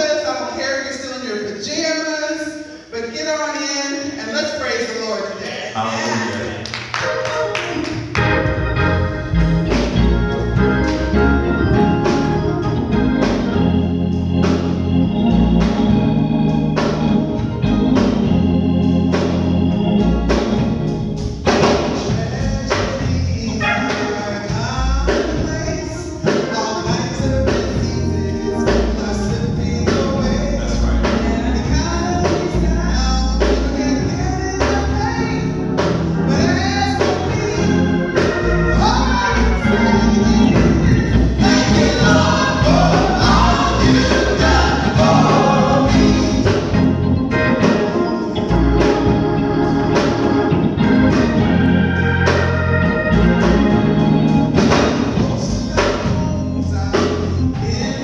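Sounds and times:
instrumental accompaniment with beat: 0:06.4 - 0:58.0
group singing gospel: 0:21.5 - 0:58.0.

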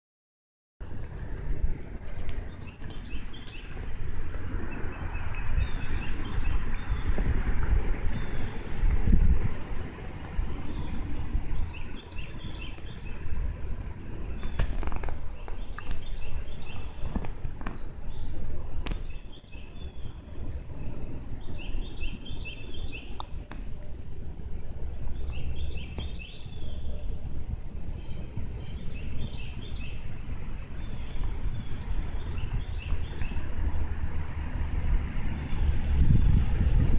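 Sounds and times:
wind rumbling on microphone: 0:00.8 - 0:36.9
bird chirping: 0:01.2 - 0:07.5, 0:08.1 - 0:08.8, 0:10.6 - 0:13.3, 0:14.1 - 0:23.4, 0:25.1 - 0:34.2.

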